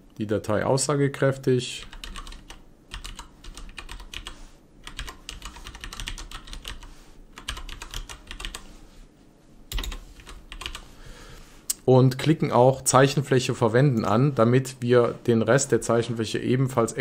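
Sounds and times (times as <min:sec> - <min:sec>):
typing on computer keyboard: 0:01.8 - 0:08.7, 0:09.7 - 0:10.8.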